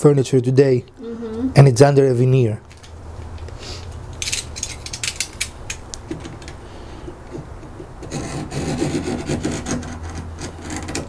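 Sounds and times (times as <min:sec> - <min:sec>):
sharp clicks and knocks: 0:04.1 - 0:08.2
knife scraping wood veneer: 0:08.0 - 0:11.0.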